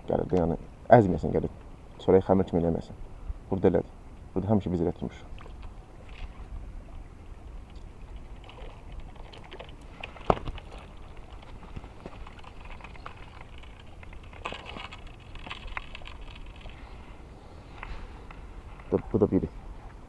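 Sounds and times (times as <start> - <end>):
handling clicks and rustles: 7.7 - 17.0.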